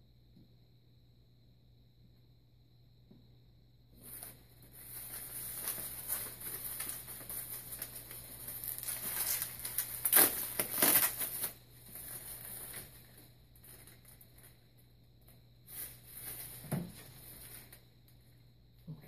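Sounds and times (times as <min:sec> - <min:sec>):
packaging crinkling: 0:04.0 - 0:14.6.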